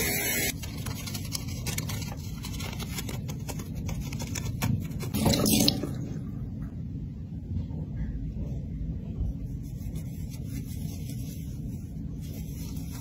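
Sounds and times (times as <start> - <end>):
brush scrubbing plastic: 0.5 - 5.2, 9.3 - 13.0.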